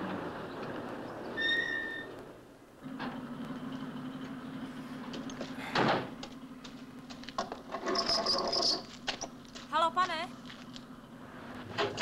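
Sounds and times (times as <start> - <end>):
creaking squeak: 1.4 - 2.2, 7.7 - 9.3
truck door shutting with a thud: 5.7 - 6.2.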